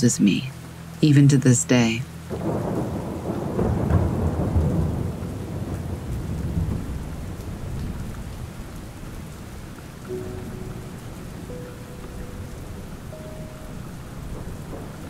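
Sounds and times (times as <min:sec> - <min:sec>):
steady rain: 0:00.0 - 0:15.0
rolling thunder: 0:02.3 - 0:15.0.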